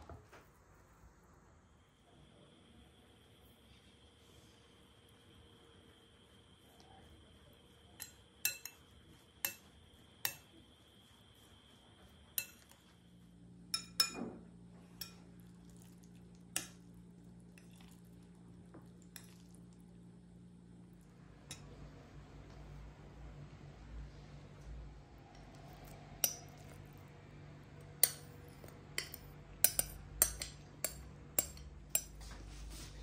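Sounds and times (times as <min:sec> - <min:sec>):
metal spoon clinking glass bowl: 0:08.0 - 0:08.8, 0:12.4 - 0:12.8, 0:13.7 - 0:14.2, 0:28.0 - 0:32.2.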